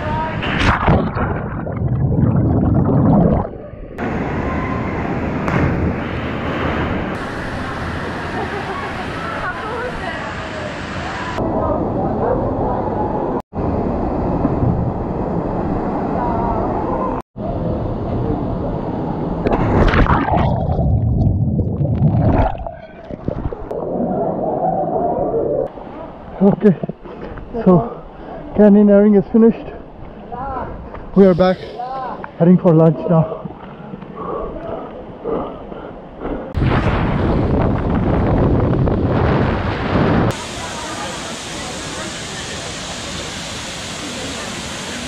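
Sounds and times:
open water noise: 0:00.0 - 0:11.4, 0:19.0 - 0:27.5
muffled underwater rush and bubbles: 0:00.2 - 0:11.8, 0:18.1 - 0:27.0, 0:36.5 - 0:45.0
underwater gurgling and sloshing: 0:00.3 - 0:04.3, 0:19.4 - 0:27.3
water splash: 0:00.4 - 0:03.6, 0:19.5 - 0:24.0.

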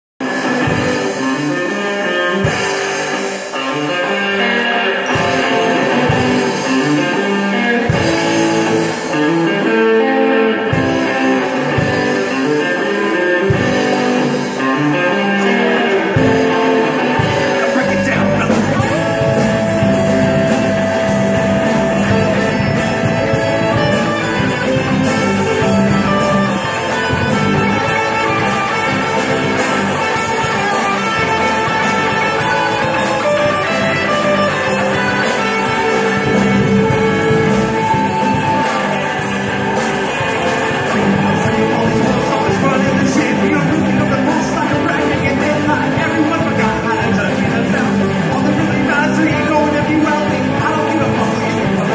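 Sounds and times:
rock band playing: 0:00.2 - 0:51.9
person singing: 0:12.2 - 0:51.9.

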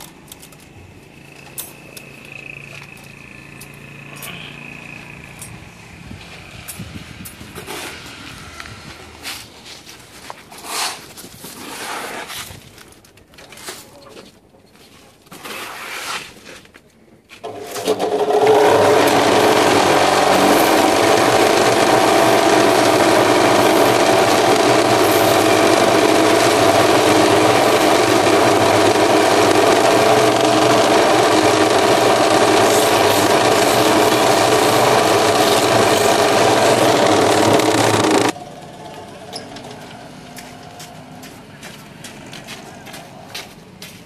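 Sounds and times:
vibrating machine buzz: 0:00.8 - 0:09.4, 0:17.4 - 0:40.0.

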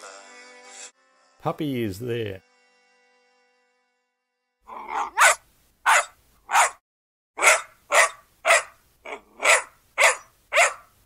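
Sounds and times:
puppy barking: 0:04.7 - 0:06.8, 0:07.4 - 0:11.0.

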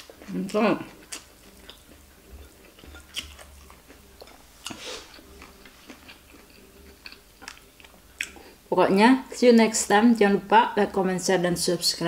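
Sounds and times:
person chewing food: 0:00.0 - 0:08.7.

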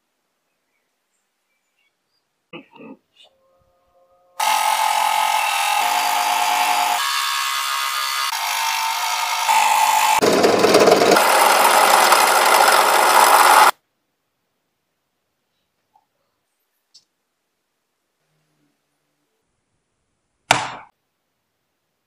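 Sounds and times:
scroll saw cutting wood: 0:04.4 - 0:13.8.

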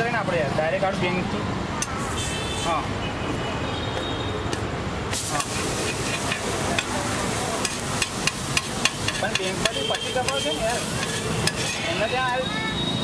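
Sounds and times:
street traffic: 0:00.0 - 0:13.0
sandwich sizzling on griddle: 0:05.1 - 0:12.7
voices: 0:05.2 - 0:13.0
metal spatula clicking on griddle: 0:05.4 - 0:06.9, 0:07.6 - 0:11.8.

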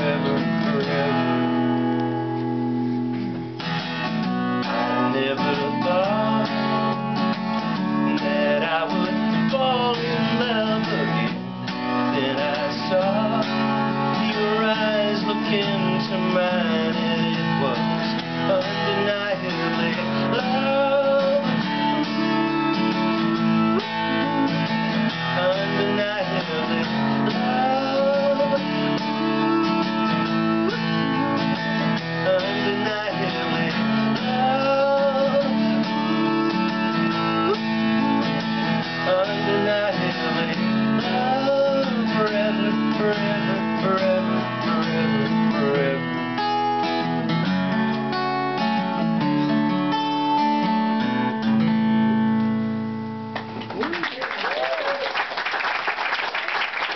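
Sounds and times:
man singing: 0:00.0 - 0:01.9, 0:04.7 - 0:46.6
acoustic guitar strumming: 0:00.0 - 0:54.2.

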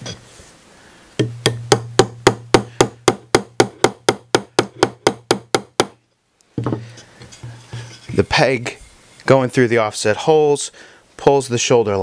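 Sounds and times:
wooden mallet driving a peg: 0:01.2 - 0:06.0.

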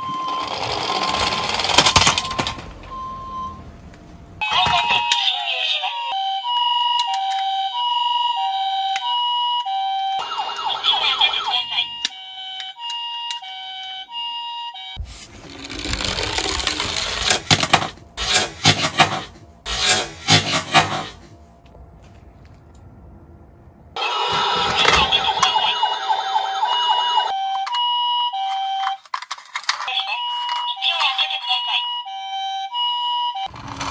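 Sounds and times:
toy truck rattling down slope: 0:00.0 - 0:02.7, 0:15.3 - 0:18.9, 0:28.4 - 0:30.8, 0:33.5 - 0:33.9
two-tone ambulance siren: 0:00.0 - 0:03.7, 0:04.4 - 0:15.0, 0:24.0 - 0:33.9.

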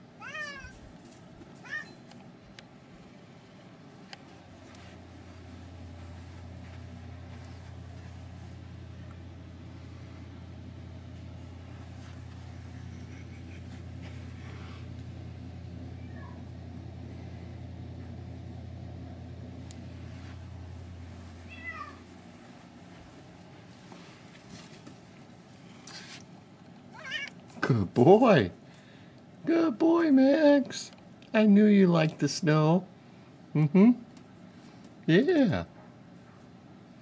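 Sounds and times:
low mechanical hum: 0:00.0 - 0:37.0
cat meowing: 0:00.2 - 0:00.8, 0:01.6 - 0:02.0, 0:21.5 - 0:22.0, 0:26.9 - 0:27.4.

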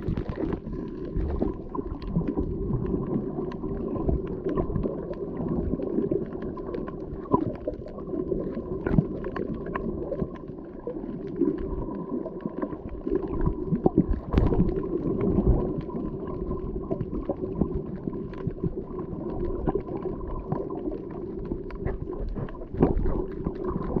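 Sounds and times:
short clicks and crackles: 0:00.0 - 0:10.4
underwater rumble and gurgling: 0:00.0 - 0:24.0.

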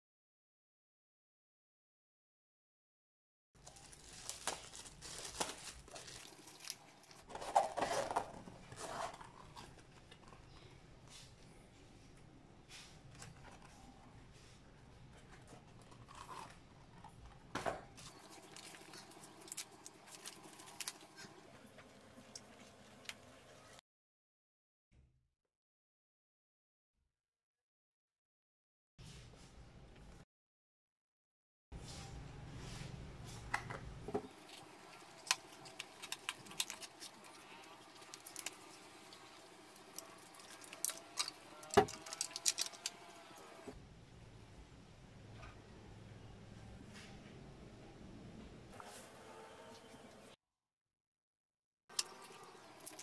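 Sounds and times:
plastic wrapping crinkling: 0:03.6 - 0:10.6, 0:18.0 - 0:23.3, 0:34.2 - 0:43.8.

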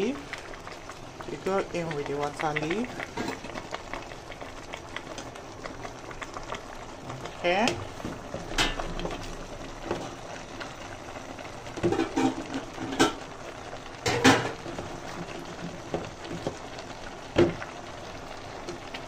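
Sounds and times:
steady sizzle: 0:00.0 - 0:19.0.

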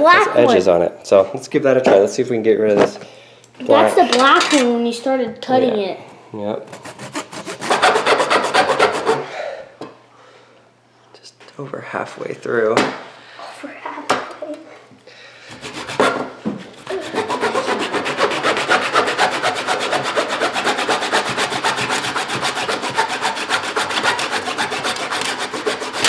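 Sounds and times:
knife sawing through ball core: 0:06.7 - 0:09.3, 0:15.5 - 0:16.2, 0:16.8 - 0:26.0.

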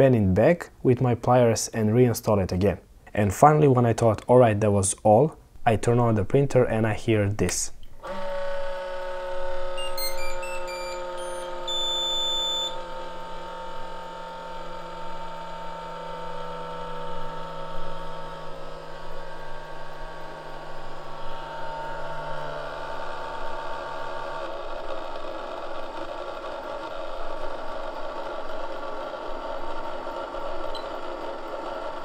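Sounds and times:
cooling fans grinding drone: 0:08.0 - 0:32.0
electronic beeps: 0:09.8 - 0:12.8.

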